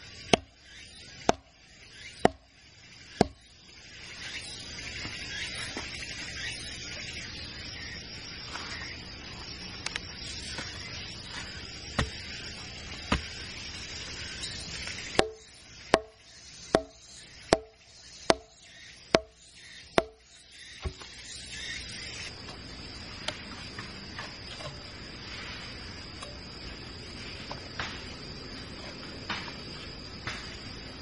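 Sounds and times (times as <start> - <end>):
club blows on bamboo stake: 15.2 - 16.9.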